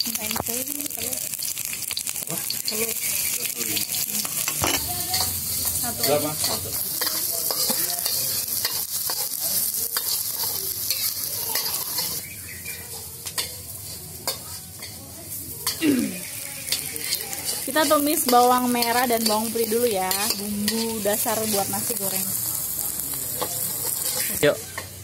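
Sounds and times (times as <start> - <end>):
food sizzling in hot oil: 0.0 - 25.0
spatula scraping a wok: 1.4 - 25.0
spatula clicking against pan: 13.2 - 13.6.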